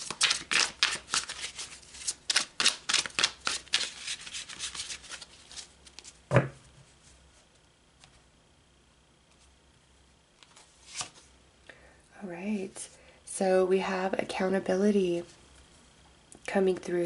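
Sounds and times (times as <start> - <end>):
cards being shuffled: 0.0 - 6.5, 10.4 - 11.3.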